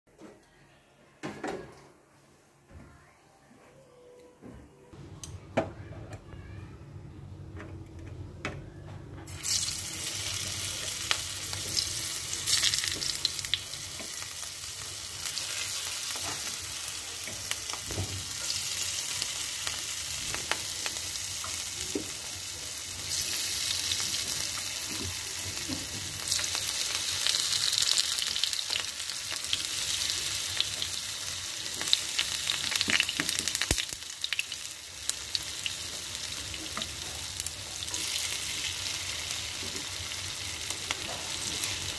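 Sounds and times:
hot oil sizzling in frying pan: 9.3s - 41.9s
oil crackling and popping: 31.6s - 35.8s.

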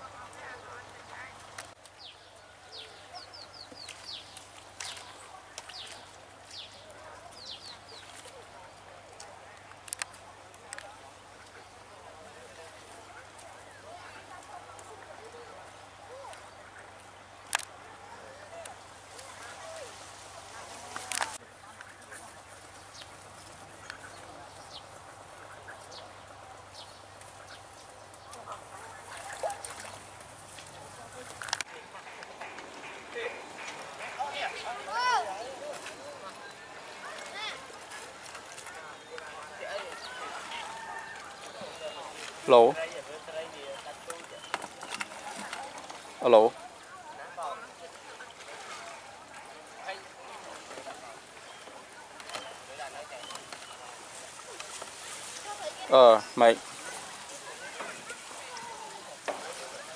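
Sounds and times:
small birds chirping: 0.4s - 8.5s, 21.1s - 47.0s.

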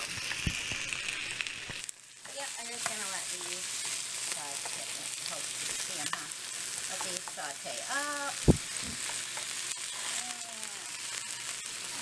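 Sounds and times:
chicken sizzling in a frying pan: 0.0s - 12.0s
dull thump: 8.4s - 9.0s.

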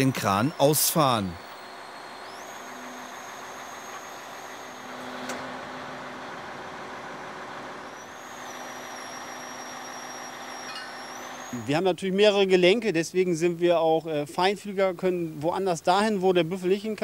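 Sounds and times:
high-pitched hydraulic whine: 0.0s - 11.8s
truck engine and hydraulics running: 0.0s - 11.8s.

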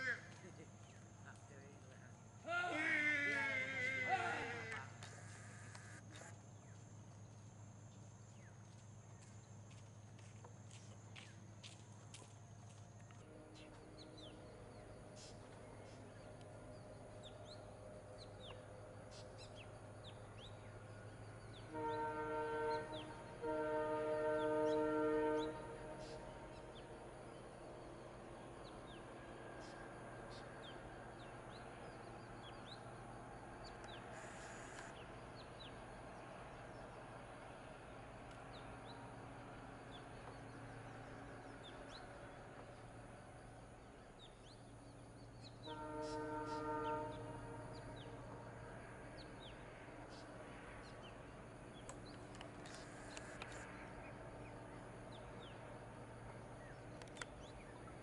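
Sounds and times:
birds chirping: 13.0s - 28.0s, 49.1s - 55.7s
vehicle horn blasts: 21.7s - 26.0s, 45.6s - 48.1s.

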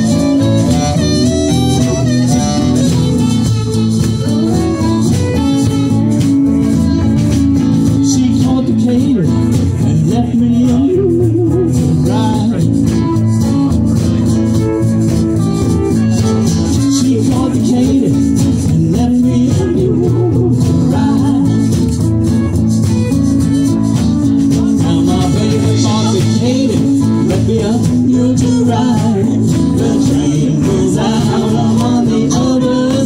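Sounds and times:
guitars: 0.0s - 33.0s
rattling percussion beat: 0.0s - 33.0s
upright bass: 0.0s - 33.0s.

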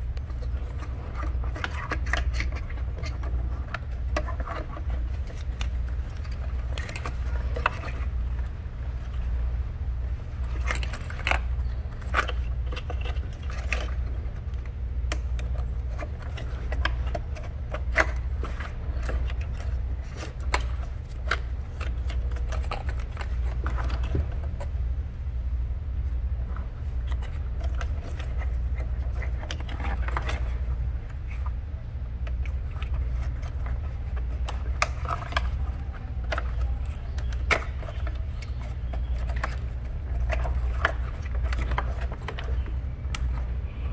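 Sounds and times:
steady low hum: 0.0s - 43.9s
plastic connectors clicking: 32.2s - 43.5s.

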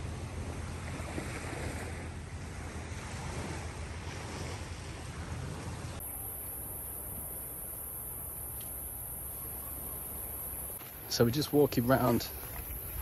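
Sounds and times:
wind rumbling on microphone: 0.0s - 6.0s, 12.2s - 13.0s
sea surf: 0.0s - 13.0s
wind: 0.0s - 13.0s.

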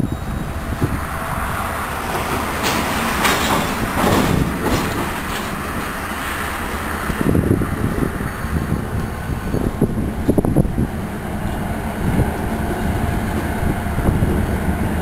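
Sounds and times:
train wheels rumbling on rails: 0.0s - 15.0s
wheels clacking over rail joints: 1.5s - 10.7s.

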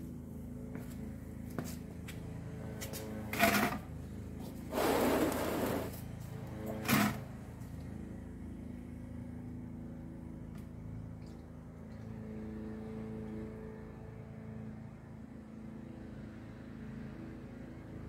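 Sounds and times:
low engine hum: 0.0s - 18.0s.

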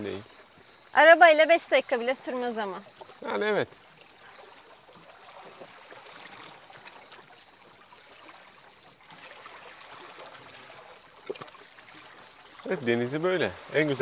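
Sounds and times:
small waves lapping on rocks: 0.0s - 14.0s
small clicks or splashes: 2.8s - 12.7s.

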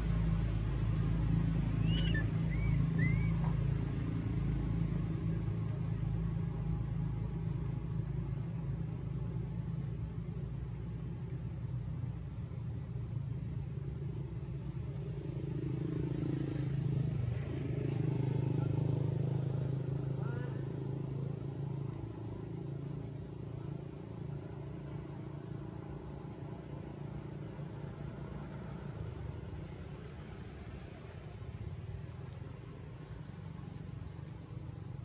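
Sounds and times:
vehicle engine rumbling: 0.0s - 35.0s
monkey squeaking: 1.8s - 3.4s.

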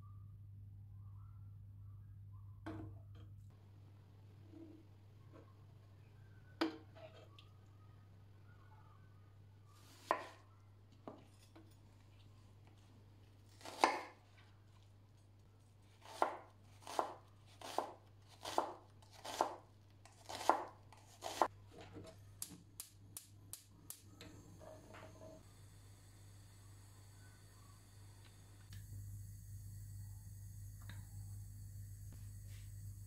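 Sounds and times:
low steady hum: 0.0s - 9.8s, 23.2s - 33.0s
knife chopping onion on wood: 10.0s - 10.4s, 13.6s - 14.2s, 16.0s - 21.5s.

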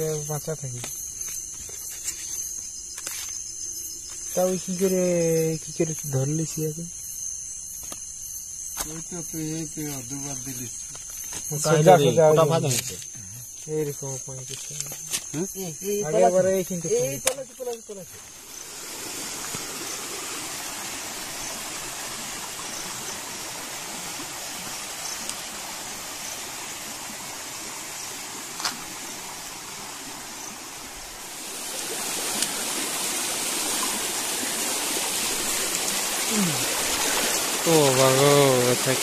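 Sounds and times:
stream flowing: 8.9s - 39.0s.

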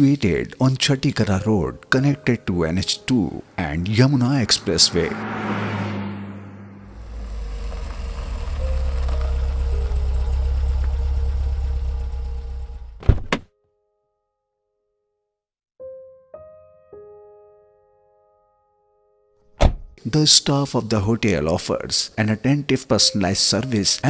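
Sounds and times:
car engine and road rumble: 2.1s - 13.4s
sharp double thunk: 19.6s - 19.9s.

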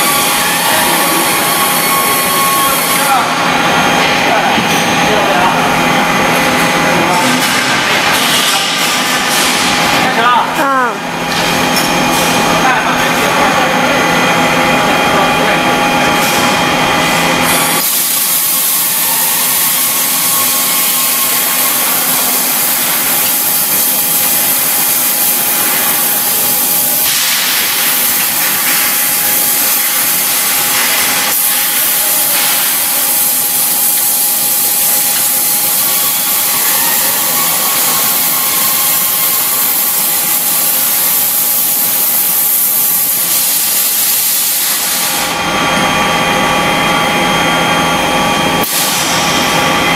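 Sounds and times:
cutting torch hissing: 48.6s - 49.2s.

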